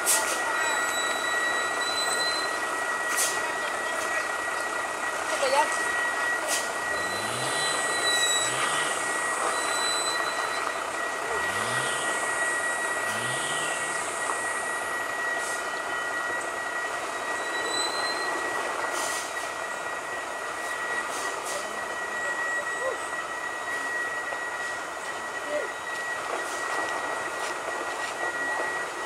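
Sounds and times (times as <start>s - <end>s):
truck diesel engine under load: 0.0s - 22.6s
steady high-pitched whine: 0.0s - 29.0s.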